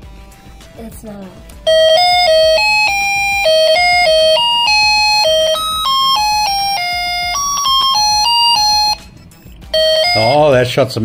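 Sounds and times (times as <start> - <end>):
beeping electronic tune: 1.7 - 9.1, 9.7 - 10.6.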